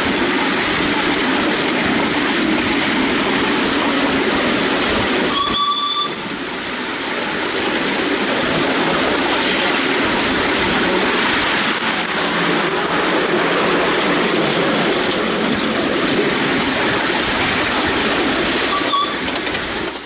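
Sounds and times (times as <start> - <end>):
miniature steam train running: 0.0 - 20.0
steam locomotive whistle: 5.3 - 6.3, 18.7 - 20.0.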